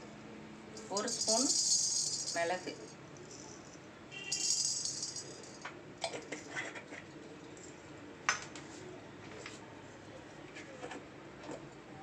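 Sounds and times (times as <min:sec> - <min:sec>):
peppercorns rattling in pan: 0:00.8 - 0:02.7, 0:04.3 - 0:05.6.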